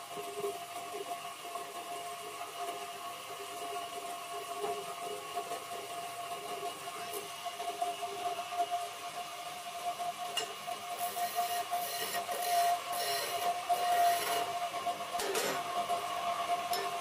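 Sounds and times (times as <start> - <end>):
lathe motor humming: 11.0 - 17.0.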